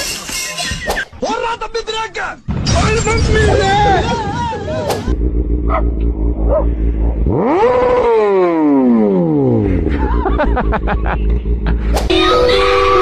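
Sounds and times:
motorcycle engine revving: 4.7s - 12.3s.

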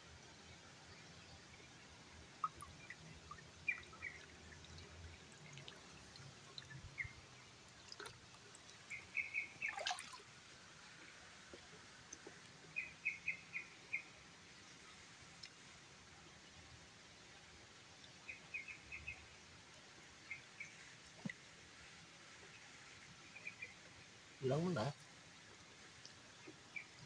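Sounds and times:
stream water trickling: 0.0s - 27.0s
small clicks and drips: 0.5s - 27.0s
bird chirping: 8.9s - 9.8s, 12.8s - 14.1s.

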